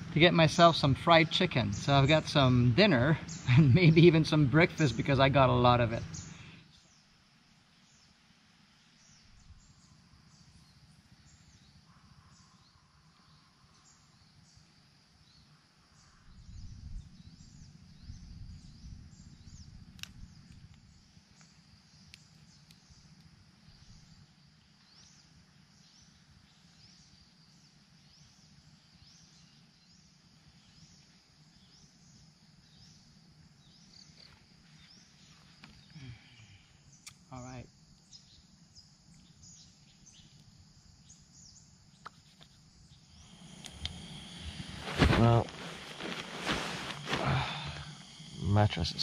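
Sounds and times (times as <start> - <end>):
campfire crackling: 0.0 - 7.0, 18.3 - 26.8, 30.2 - 49.0
small birds chirping: 0.0 - 49.0.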